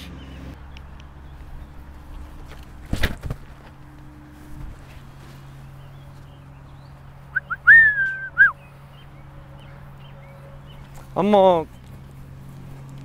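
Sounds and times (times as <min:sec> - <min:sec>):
loud whistled call: 0:07.3 - 0:08.7.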